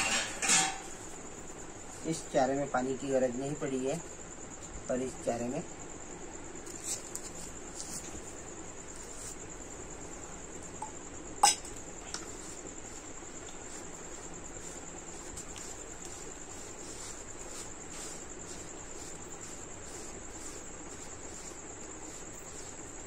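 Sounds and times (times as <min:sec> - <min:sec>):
crickets trilling: 0:00.0 - 0:23.0
steel utensil clink: 0:11.4 - 0:11.7.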